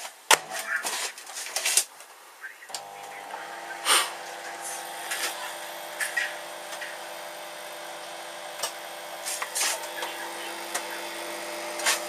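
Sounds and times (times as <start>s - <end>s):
microwave oven humming: 2.7s - 12.0s
sharp clicks and crackles: 7.8s - 12.0s.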